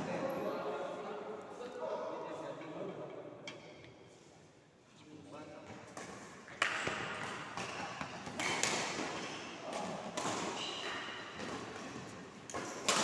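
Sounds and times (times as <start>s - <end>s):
racket hitting shuttlecock: 5.8s - 13.0s.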